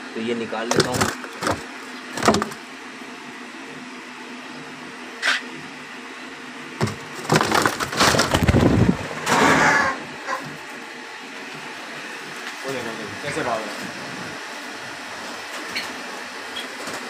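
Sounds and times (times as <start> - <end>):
scraping and rattling: 0.7 - 2.6, 6.8 - 9.9
knocks in a wooden cage: 2.2 - 2.6.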